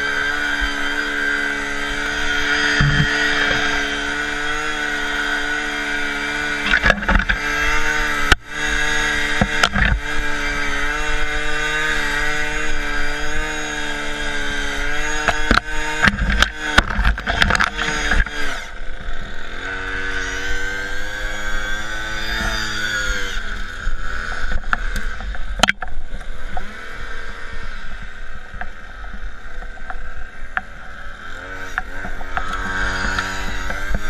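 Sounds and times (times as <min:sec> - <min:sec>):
small engine running: 0:00.0 - 0:34.0
sharp clicks and knocks: 0:02.7 - 0:03.8, 0:06.6 - 0:08.4, 0:09.3 - 0:10.2, 0:15.1 - 0:18.4, 0:24.2 - 0:26.7, 0:28.5 - 0:30.8, 0:31.7 - 0:34.0.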